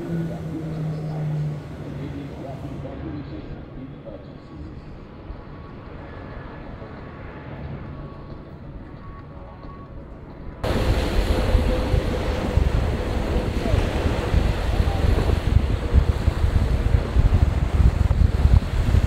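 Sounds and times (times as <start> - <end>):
airliner engines rumbling in flight: 0.0 - 9.8, 10.6 - 19.0
wind buffeting microphone: 10.6 - 19.0.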